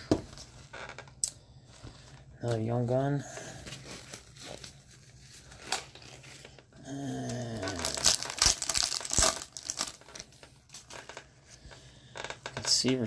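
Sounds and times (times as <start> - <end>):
foil wrapper crinkling: 3.4 - 12.8.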